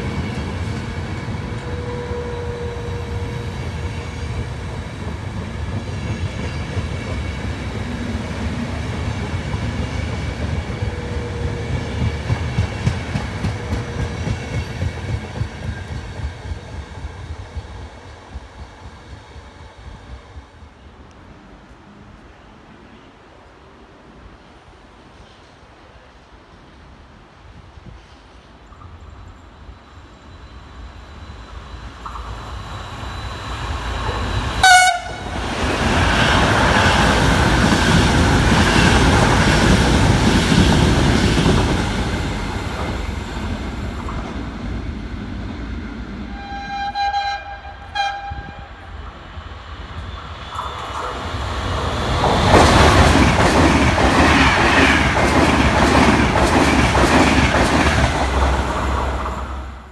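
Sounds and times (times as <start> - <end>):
train rushing past: 0.0 - 59.9
train horn blast: 1.6 - 3.5, 34.6 - 35.4, 46.3 - 48.9.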